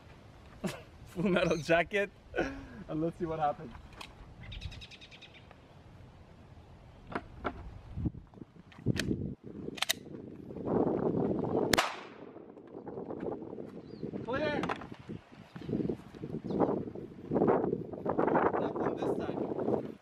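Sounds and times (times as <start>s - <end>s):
pistol handling clicks: 8.9s - 10.1s
gunshot with ringing tail: 11.7s - 12.4s.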